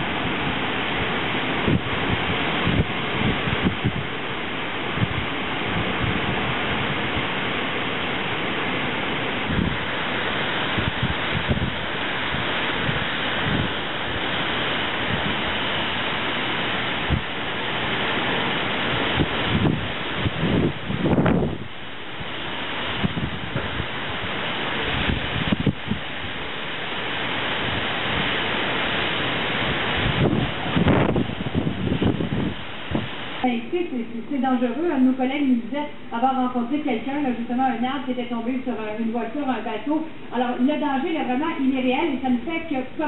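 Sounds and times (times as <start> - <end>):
heavy rain: 0.0 - 43.0
storm wind gusting through trees: 0.0 - 43.0
wind buffeting microphone: 0.0 - 43.0.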